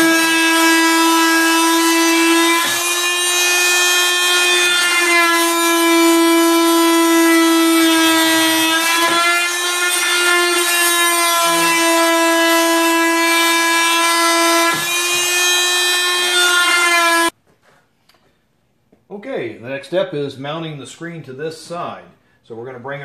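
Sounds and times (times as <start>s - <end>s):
angle grinder cutting plastic: 0.0s - 17.4s.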